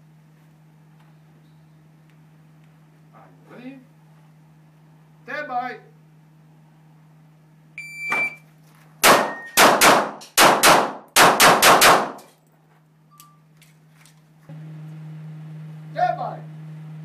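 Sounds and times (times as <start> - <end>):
shot timer beep: 7.8 - 8.4, 9.2 - 9.6
pistol shots echoing indoors: 9.0 - 12.3.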